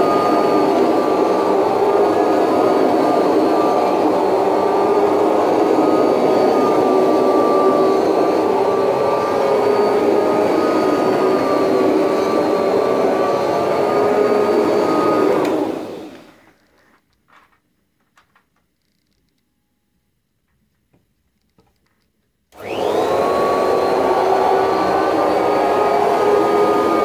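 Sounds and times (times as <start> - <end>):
vacuum cleaner motor whine: 0.0 - 16.7, 22.5 - 27.0.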